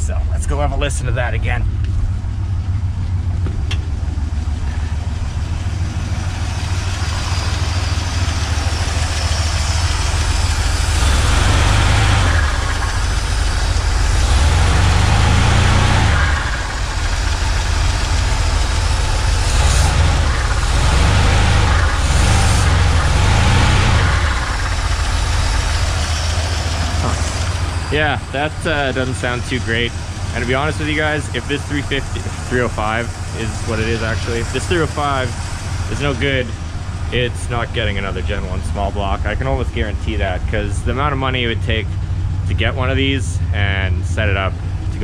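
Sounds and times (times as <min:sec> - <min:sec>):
man talking: 0:00.0 - 0:01.7, 0:27.9 - 0:45.0
car engine revving: 0:00.0 - 0:45.0.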